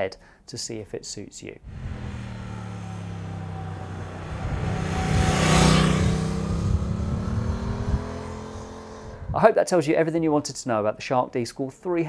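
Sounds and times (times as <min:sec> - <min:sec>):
motorcycle riding past: 0:01.6 - 0:09.3.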